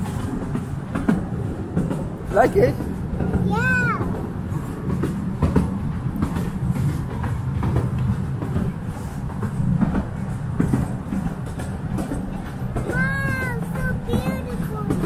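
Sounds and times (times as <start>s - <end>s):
train rumbling on rails: 0.0s - 15.0s
wheels clicking over rail joints: 0.0s - 15.0s.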